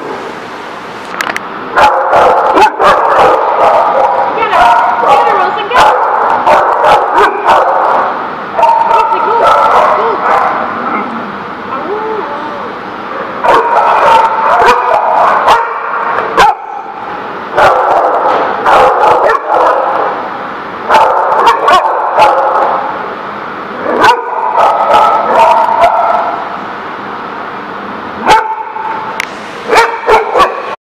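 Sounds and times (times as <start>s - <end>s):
dogs barking and yowling: 1.7s - 11.1s, 13.1s - 23.0s, 23.8s - 26.5s, 28.2s - 29.0s, 29.7s - 30.8s.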